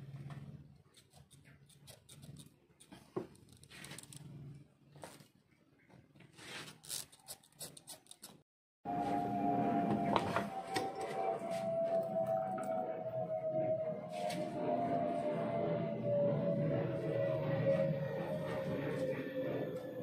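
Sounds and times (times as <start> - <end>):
knife scraping leather: 0.9 - 4.2, 6.4 - 8.4.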